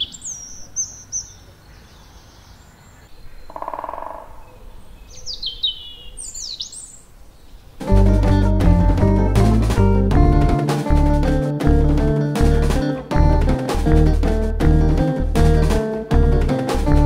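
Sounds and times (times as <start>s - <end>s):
birds whistling: 0.0s - 3.6s, 4.4s - 7.1s
music with drums: 7.8s - 17.0s.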